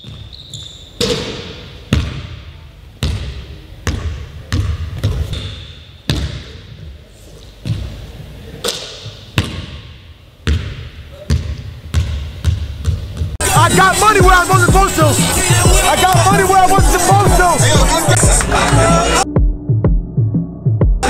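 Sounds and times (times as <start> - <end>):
basketball bouncing on hard court: 1.0 - 2.4, 3.0 - 6.6, 7.6 - 8.0, 9.4 - 13.4.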